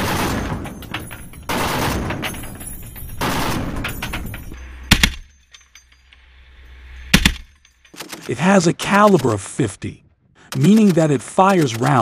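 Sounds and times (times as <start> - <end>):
machine gun firing bursts: 0.0 - 0.9, 1.5 - 2.4, 3.2 - 4.0.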